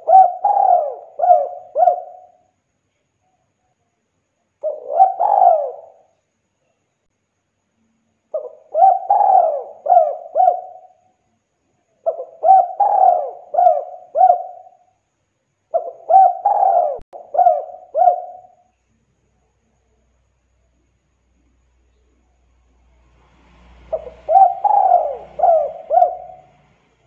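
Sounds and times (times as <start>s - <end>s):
dove cooing: 0.0s - 2.4s, 4.6s - 6.1s, 8.3s - 11.0s, 12.0s - 14.8s, 15.7s - 18.6s, 23.8s - 26.7s.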